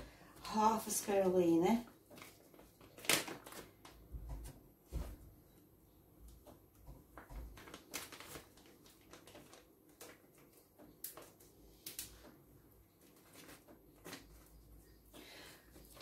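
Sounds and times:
plastic pouch handled: 0:01.9 - 0:04.0, 0:07.1 - 0:12.1, 0:13.0 - 0:14.7.

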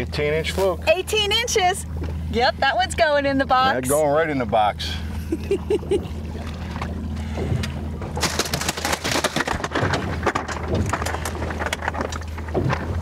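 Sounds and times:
boat motor hum: 0:00.0 - 0:13.0
knocks and splashing: 0:05.4 - 0:13.0.

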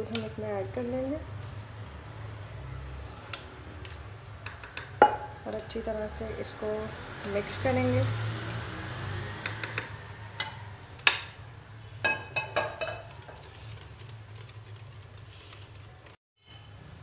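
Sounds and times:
metal clinking against glass: 0:12.0 - 0:14.5.

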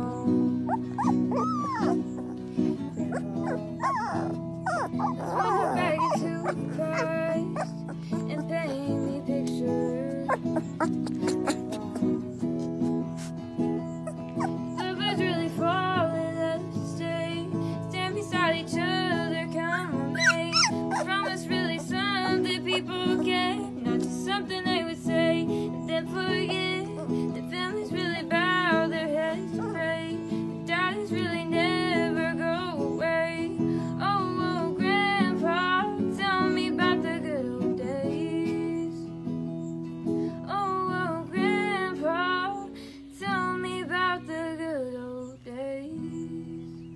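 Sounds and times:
woman singing: 0:00.0 - 0:12.5, 0:14.7 - 0:39.2, 0:40.3 - 0:46.9
acoustic guitar: 0:00.0 - 0:46.9.

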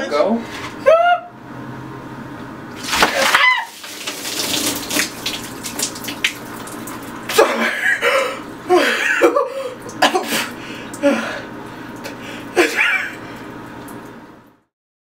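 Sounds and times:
woman squealing: 0:00.8 - 0:01.4, 0:03.1 - 0:03.9
water running and dripping: 0:02.7 - 0:07.4, 0:09.3 - 0:14.6
water splashing down: 0:02.8 - 0:07.4
woman crying out: 0:03.2 - 0:03.8.

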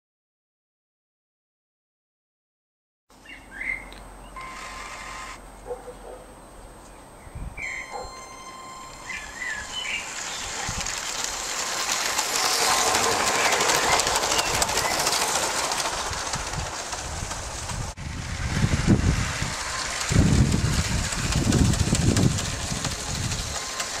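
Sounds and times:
thin electric whine: 0:07.8 - 0:10.3
toy train wheels clattering: 0:07.8 - 0:24.0.

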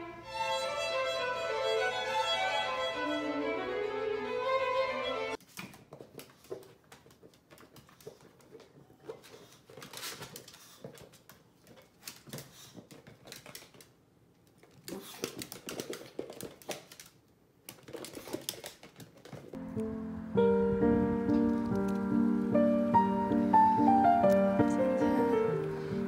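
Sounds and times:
dog claws clicking on wooden floor: 0:05.4 - 0:19.6.

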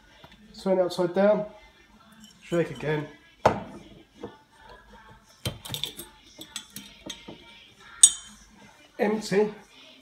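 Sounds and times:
bottles clinking: 0:02.1 - 0:04.4, 0:08.0 - 0:08.4.

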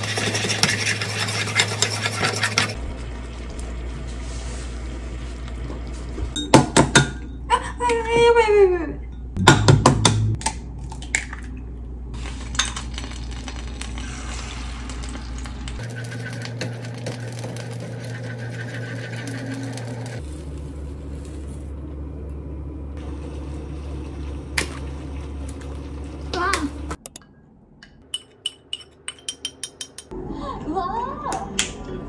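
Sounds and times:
chopsticks stirring eggs in a pan: 0:00.0 - 0:02.8.

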